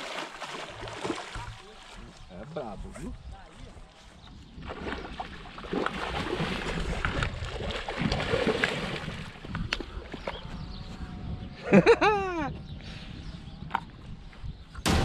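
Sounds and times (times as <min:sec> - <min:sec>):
fish splashing in water: 0:00.0 - 0:02.1, 0:04.6 - 0:09.5
wind rumble on microphone: 0:01.4 - 0:15.0.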